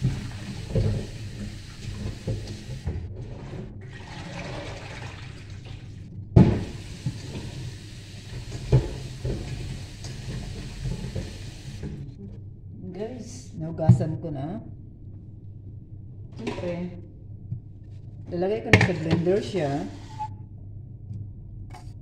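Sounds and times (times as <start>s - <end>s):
produce rinsed by hand: 0.0s - 12.1s
pot knocking against sink: 8.5s - 9.7s.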